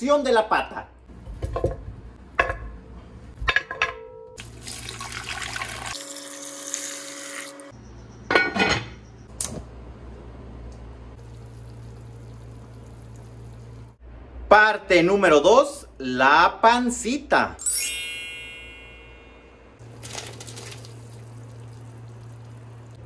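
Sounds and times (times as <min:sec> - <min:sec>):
water pouring and splashing: 0:04.4 - 0:07.6, 0:11.2 - 0:14.0, 0:19.8 - 0:23.0.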